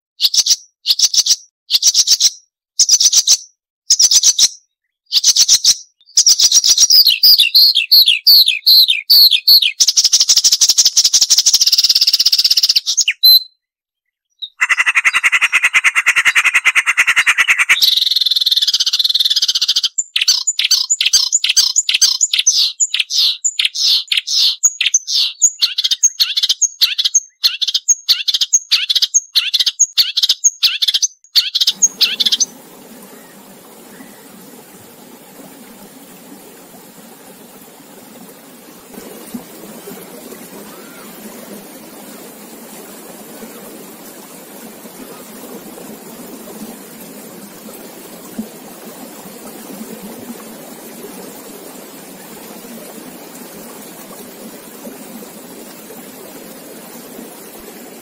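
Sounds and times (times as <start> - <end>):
bird singing: 0.2 - 10.3, 11.6 - 34.7, 40.6 - 41.4
running water: 31.6 - 58.0.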